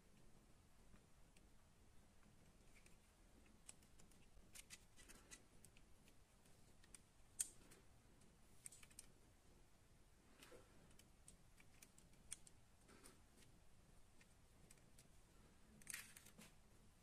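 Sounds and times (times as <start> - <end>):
fingers clicking on toy model: 2.7 - 7.6, 10.9 - 12.6.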